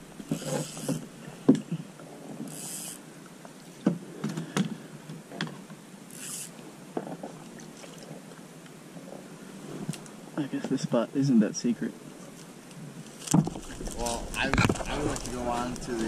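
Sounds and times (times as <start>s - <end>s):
water splashing: 7.4s - 8.4s, 13.1s - 16.0s.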